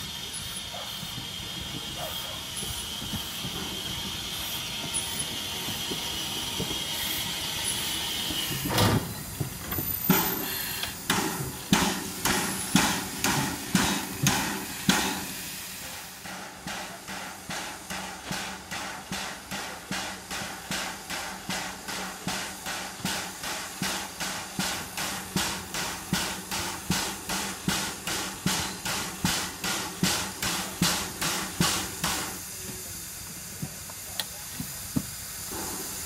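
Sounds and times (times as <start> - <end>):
steam hissing: 0.0 - 36.0
steam locomotive chuffing: 0.0 - 36.0.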